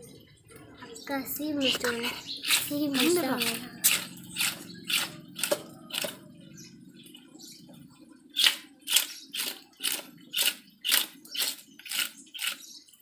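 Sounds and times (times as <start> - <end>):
knife scraping fish scales: 2.2 - 5.6, 8.4 - 12.6.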